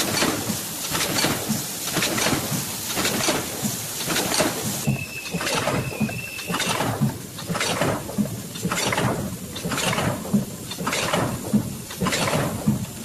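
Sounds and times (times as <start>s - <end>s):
packing machine clatter and hiss: 0.0s - 13.0s.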